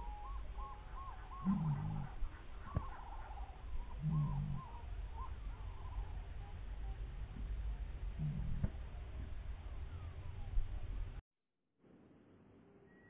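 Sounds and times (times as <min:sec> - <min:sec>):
slowed higher bird notes: 0:00.0 - 0:07.2
slowed low bird call: 0:00.0 - 0:11.2.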